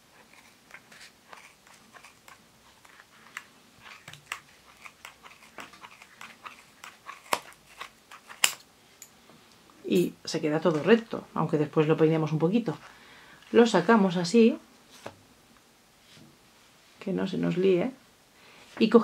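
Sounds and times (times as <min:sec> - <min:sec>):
scissors snipping yarn: 0:03.3 - 0:08.6.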